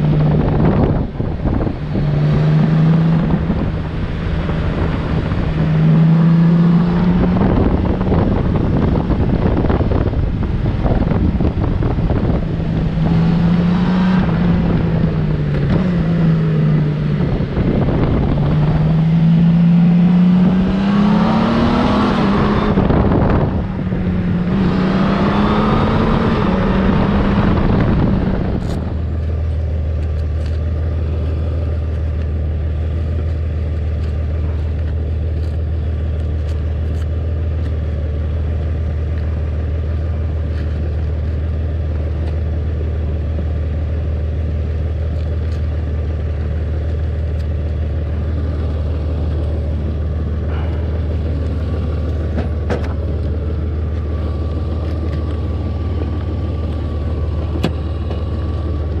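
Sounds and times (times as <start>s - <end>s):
wind noise: 0.0s - 30.5s
motorcycle engine running: 0.0s - 59.0s.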